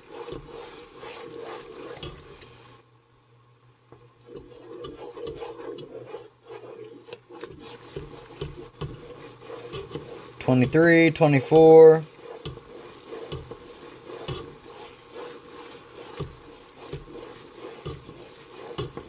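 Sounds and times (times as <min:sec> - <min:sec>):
wooden spoon scraping metal pot: 0:00.0 - 0:02.7, 0:04.2 - 0:19.0.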